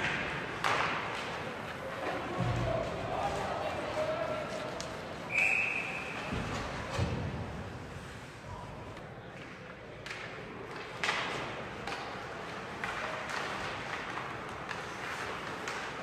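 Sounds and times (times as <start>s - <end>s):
hockey sticks and puck knocking: 0.0s - 3.0s, 9.4s - 16.0s
skates scraping on ice: 11.3s - 16.0s.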